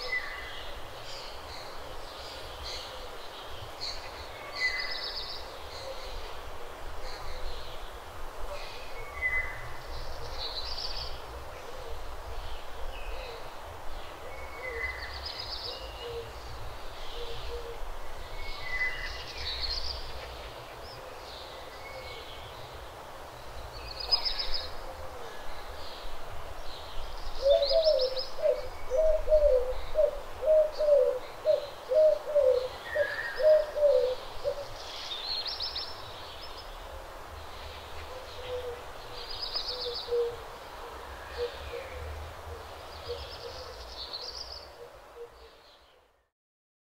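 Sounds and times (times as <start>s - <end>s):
low hooting bird calls: 27.4s - 34.8s, 38.0s - 45.6s.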